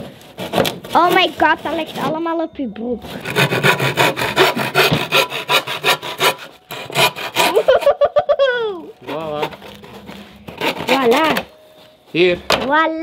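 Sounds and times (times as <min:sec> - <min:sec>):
hand saw cutting wood: 0:00.2 - 0:02.2, 0:03.1 - 0:07.9, 0:09.0 - 0:11.5.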